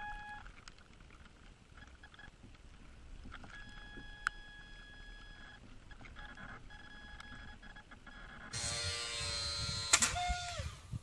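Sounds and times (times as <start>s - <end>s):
faint electronic tone: 0.0s - 0.5s, 3.5s - 8.6s.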